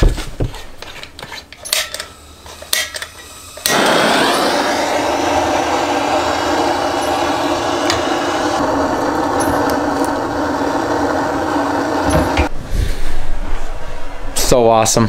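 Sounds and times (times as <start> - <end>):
propane torch burning: 1.6 - 12.5.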